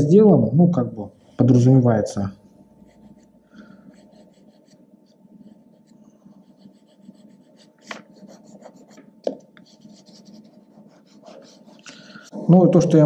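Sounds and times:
chalk scraping on paper: 0:02.8 - 0:12.3.

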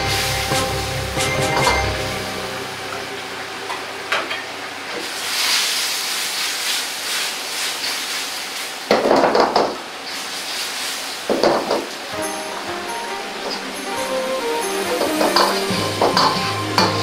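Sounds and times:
sauce bubbling and sizzling: 0:04.7 - 0:09.0, 0:10.0 - 0:11.3.

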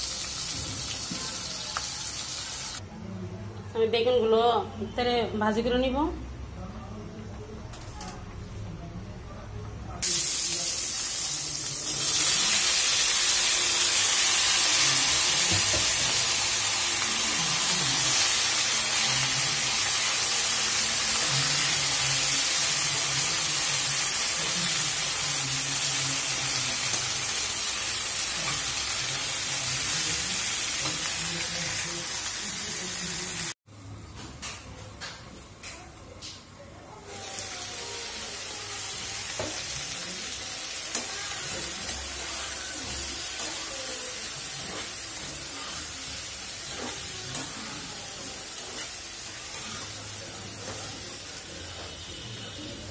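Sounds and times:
food frying in oil: 0:00.0 - 0:02.8, 0:10.0 - 0:33.6, 0:37.2 - 0:52.9.

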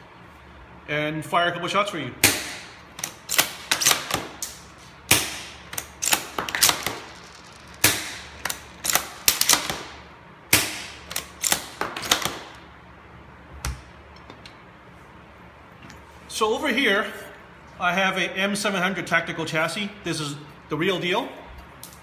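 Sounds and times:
airsoft rifle shots: 0:02.2 - 0:12.6.

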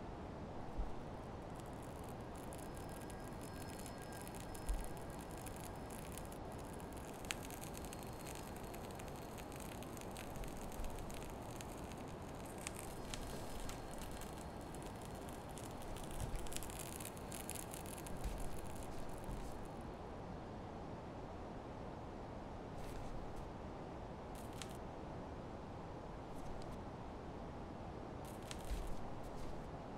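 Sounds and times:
steady low hiss: 0:00.0 - 0:29.9
sharp clicks: 0:01.4 - 0:19.8.

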